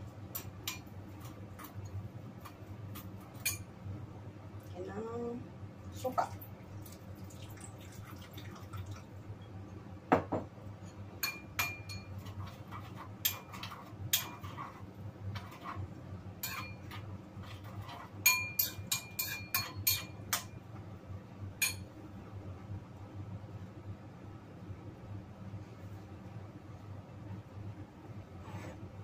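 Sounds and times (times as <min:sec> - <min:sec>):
metal spoon clinking ceramic bowl: 0:03.4 - 0:03.7, 0:11.2 - 0:12.4, 0:16.4 - 0:17.0, 0:18.2 - 0:20.5.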